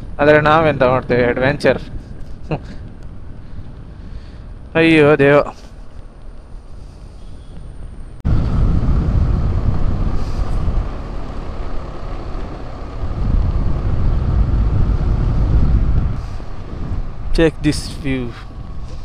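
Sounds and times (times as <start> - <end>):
scooter riding rumble: 0.0 - 19.0.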